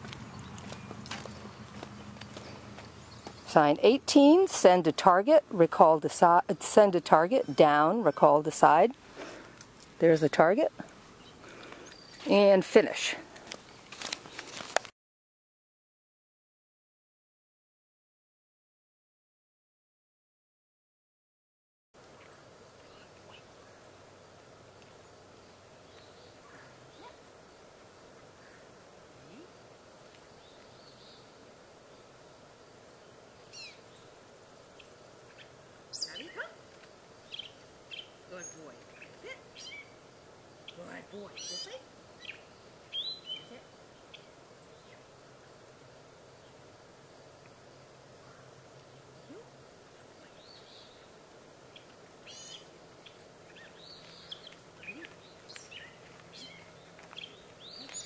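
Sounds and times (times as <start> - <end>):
birds chirping: 0.0 - 5.3, 6.6 - 14.5, 22.2 - 29.6, 30.2 - 45.2, 46.2 - 58.0
faint outdoor background noise: 0.0 - 14.9, 22.0 - 58.0
faint background hiss: 22.0 - 58.0.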